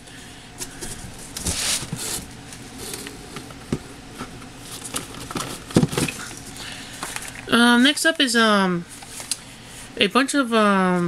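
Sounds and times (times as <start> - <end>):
cardboard box rustling: 3.6 - 6.5.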